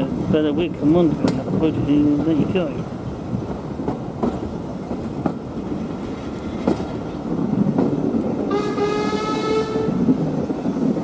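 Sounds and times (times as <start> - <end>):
wheels clicking over rail joints: 0.0 - 8.5
train carriages rumbling: 0.0 - 11.0.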